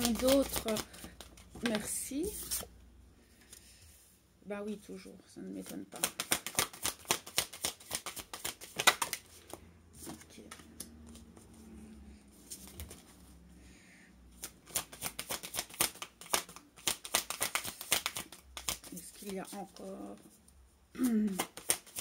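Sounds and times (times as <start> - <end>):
cards being shuffled: 0.0 - 2.7, 5.5 - 11.6, 12.3 - 13.3, 14.4 - 20.3, 21.0 - 22.0.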